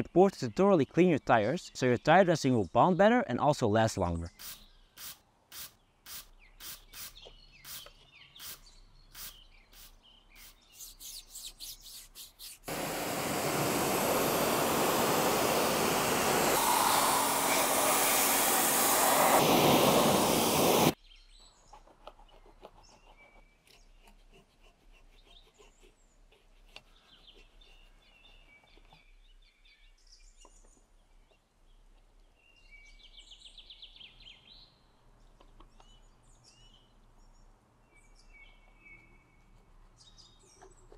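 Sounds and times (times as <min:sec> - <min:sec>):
birds chirping: 0:05.8 - 0:24.0
rubbing and handling noises: 0:09.2 - 0:12.7, 0:21.8 - 0:29.0
brush scrubbing a tyre: 0:09.2 - 0:21.0, 0:23.8 - 0:28.9
pressure washer jet: 0:12.7 - 0:21.0.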